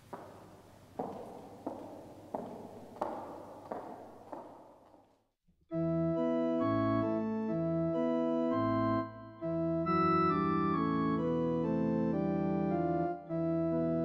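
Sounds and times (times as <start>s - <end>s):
organ playing sustained chords: 5.7s - 14.0s.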